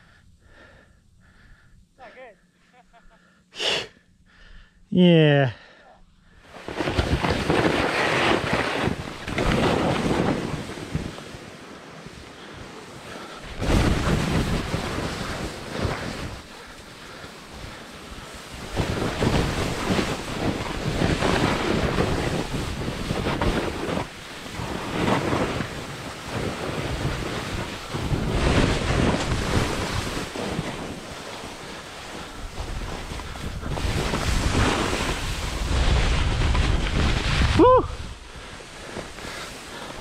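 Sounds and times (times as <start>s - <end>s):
snowboard scraping over snow: 6.4s - 40.0s
wind on microphone: 18.2s - 40.0s.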